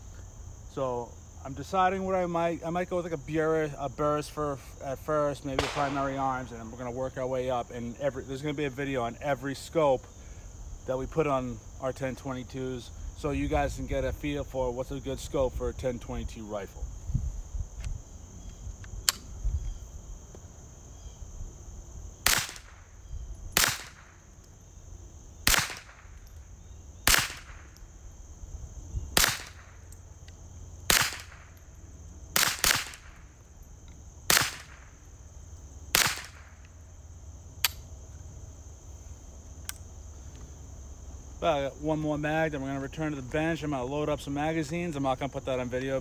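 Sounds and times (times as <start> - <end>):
rifle shots with echo: 5.6 - 6.3, 22.2 - 22.8, 23.6 - 24.2, 25.4 - 26.1, 27.0 - 27.7, 29.2 - 29.7, 30.9 - 31.4, 32.3 - 33.2, 34.3 - 34.9, 35.9 - 36.5.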